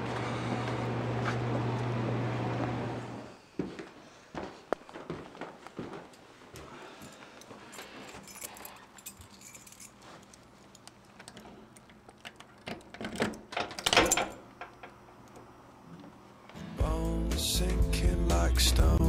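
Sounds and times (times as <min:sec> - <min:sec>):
keys jangling: 0:07.0 - 0:14.4.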